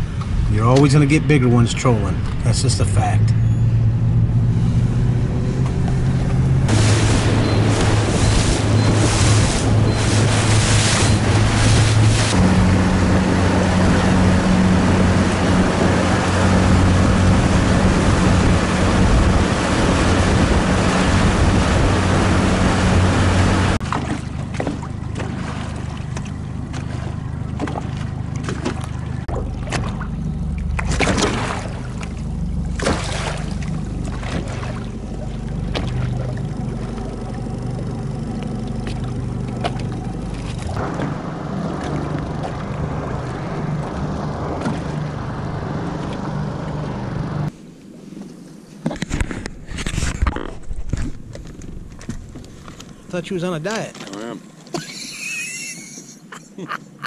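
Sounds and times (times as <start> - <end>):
boat engine running: 0.0 - 47.7, 48.6 - 57.0
water noise: 0.0 - 57.0
wind: 0.0 - 57.0.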